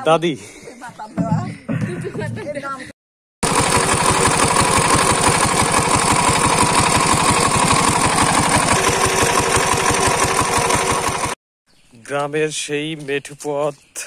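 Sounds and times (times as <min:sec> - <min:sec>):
diesel engine chugging: 0:03.4 - 0:11.4.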